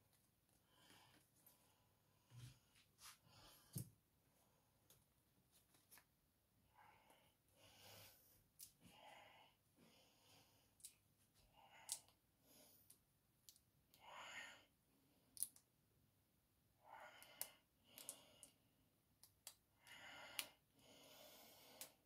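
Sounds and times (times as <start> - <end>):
soft breaths: 0.5 - 5.0, 5.6 - 13.1, 19.8 - 22.0.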